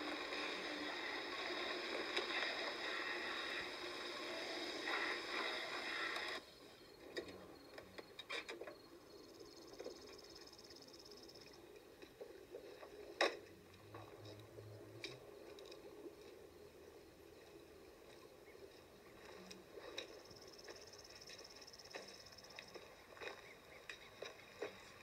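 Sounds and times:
car running and rolling: 0:00.0 - 0:06.4, 0:12.8 - 0:25.0.

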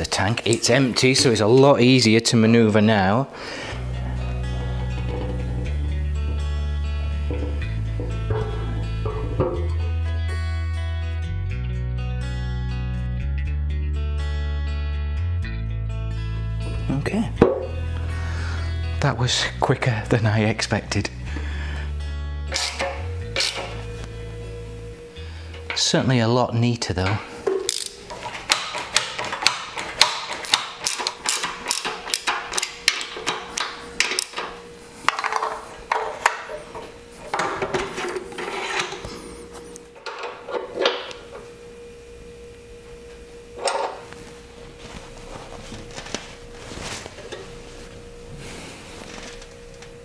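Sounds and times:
metal hand tools clicking and knocking: 0:27.6 - 0:34.3.

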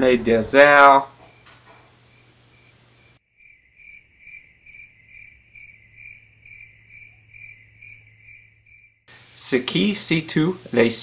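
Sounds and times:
cricket chirping: 0:01.2 - 0:09.1.

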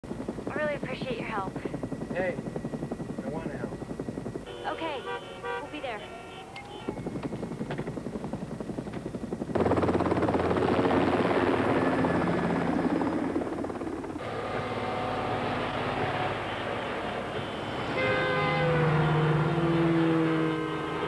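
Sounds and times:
helicopter rotor chop: 0:00.0 - 0:05.1, 0:05.7 - 0:18.0
fire engine siren tones: 0:04.4 - 0:07.8, 0:14.2 - 0:21.0.

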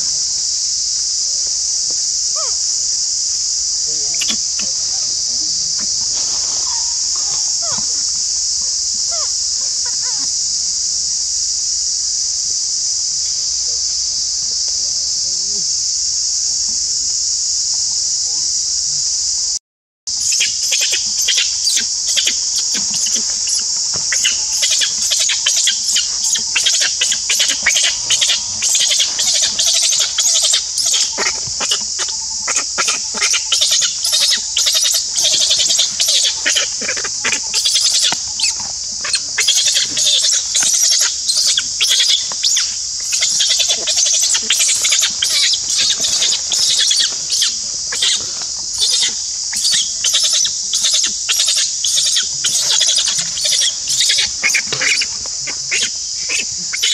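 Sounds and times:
insects buzzing: 0:00.0 - 0:56.9
crackling of dry leaves: 0:21.6 - 0:49.0.

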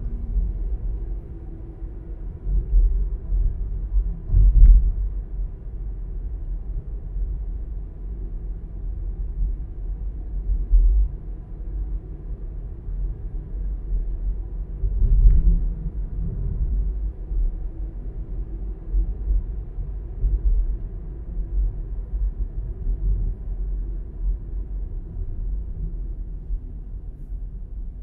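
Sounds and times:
car driving slowly: 0:00.0 - 0:28.0.

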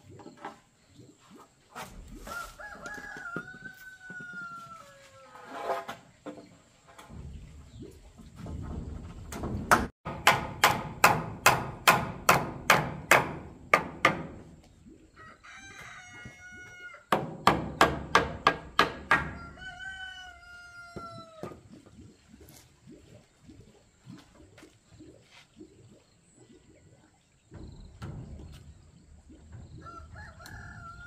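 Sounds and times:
rooster crowing: 0:02.3 - 0:05.4, 0:15.2 - 0:17.0, 0:19.3 - 0:21.4, 0:29.8 - 0:31.0
hammer striking chisel into wood: 0:10.1 - 0:14.2.

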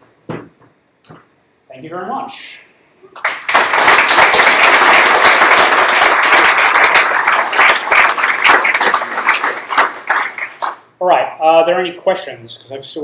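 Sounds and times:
audience applause: 0:03.2 - 0:10.8.

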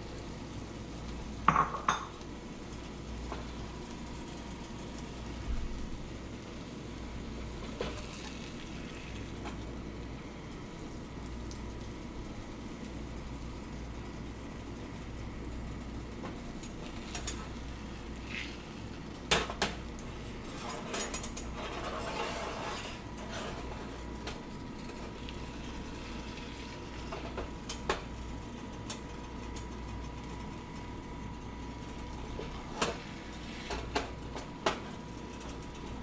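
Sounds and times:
spatula scraping frying pan: 0:20.4 - 0:24.0.

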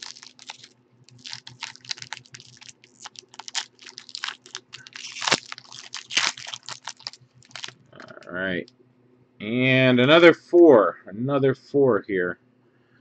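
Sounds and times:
foil wrapper crinkling and tearing: 0:00.0 - 0:08.3.

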